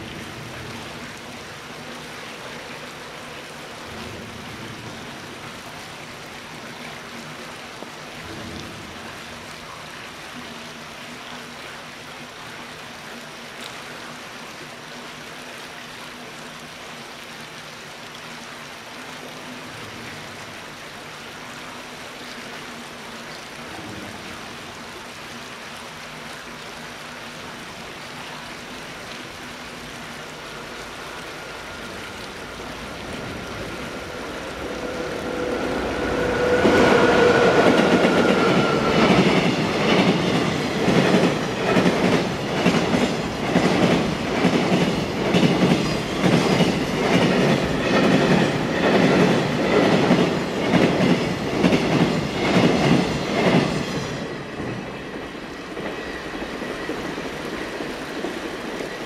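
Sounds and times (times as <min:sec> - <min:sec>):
electric locomotive rumble and whine: 0:29.8 - 0:59.0.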